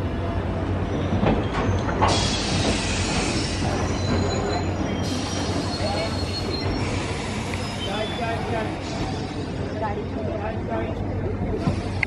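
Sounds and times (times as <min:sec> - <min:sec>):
train running on rails: 0:00.0 - 0:12.0
wheels squealing: 0:00.8 - 0:09.6.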